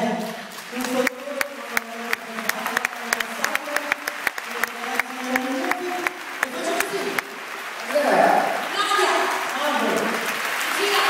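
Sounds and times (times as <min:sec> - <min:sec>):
audience clapping in time: 0:00.0 - 0:11.0.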